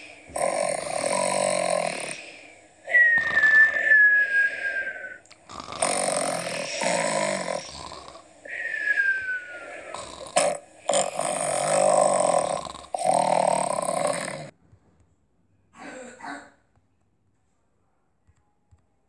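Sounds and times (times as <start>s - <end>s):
cartoon snoring: 0.0s - 14.5s
descending whistle: 2.9s - 5.2s, 8.5s - 9.9s.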